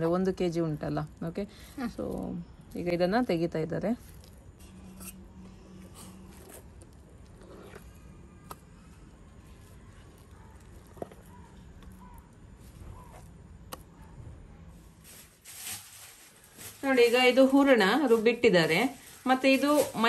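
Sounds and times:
paste scooped by hand: 4.0 - 13.9.

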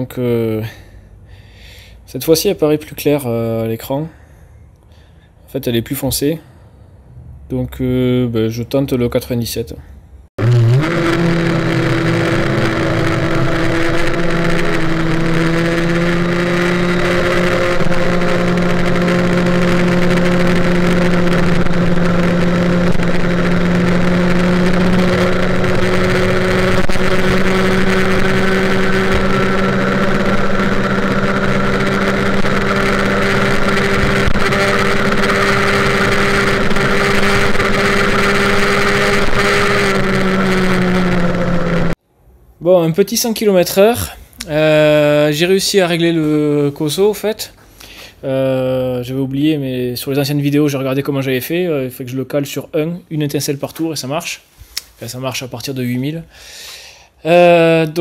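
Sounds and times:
two-stroke moped engine revving high: 10.4 - 42.0.

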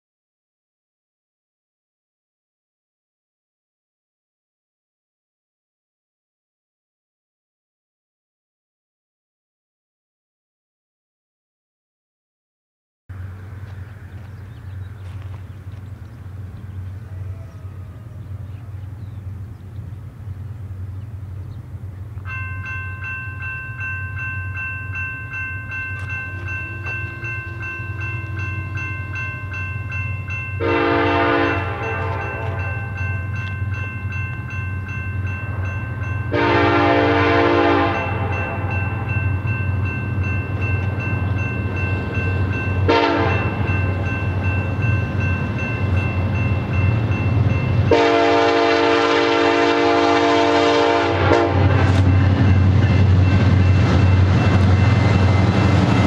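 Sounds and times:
diesel locomotive rumble: 13.1 - 56.0
crossing bell ringing: 22.1 - 56.0
locomotive horn blasts: 30.6 - 33.1, 36.3 - 39.1, 42.8 - 43.7, 47.9 - 52.3.

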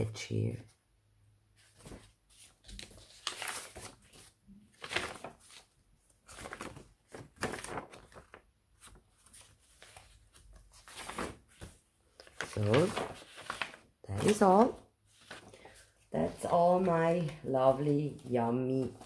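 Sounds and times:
paper sheets rustling: 1.6 - 19.0.

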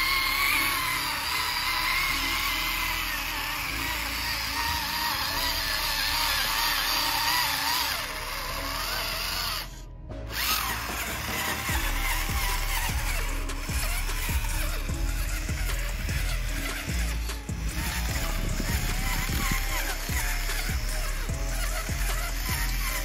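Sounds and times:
background music: 0.0 - 23.0
electric gear motor whining: 0.0 - 23.0.

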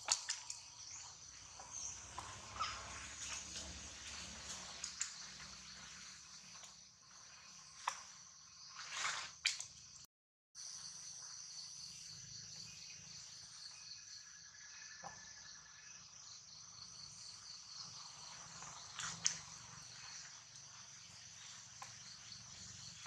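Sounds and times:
high-pitched insect chorus: 10.6 - 23.0.

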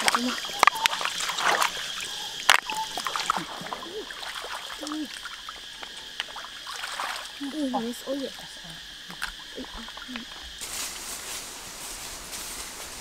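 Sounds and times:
river water splashing by hands: 0.0 - 11.1
high insect drone: 0.0 - 13.0.

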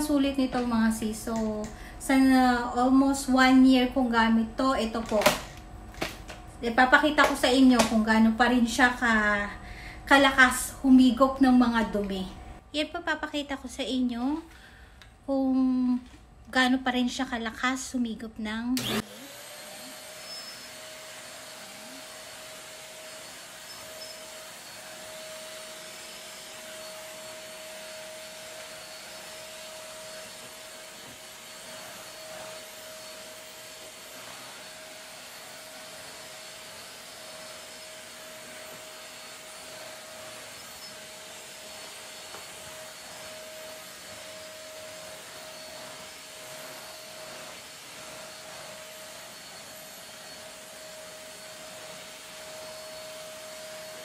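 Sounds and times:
stick vacuum cleaner running: 4.8 - 12.6, 18.8 - 54.0
vacuum head pushed over tile: 18.8 - 19.9.

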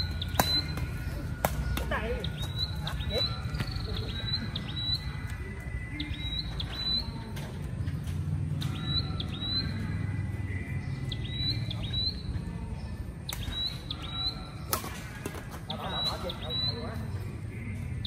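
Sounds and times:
city traffic rumble: 0.0 - 14.7
bird chirping: 0.0 - 18.0.

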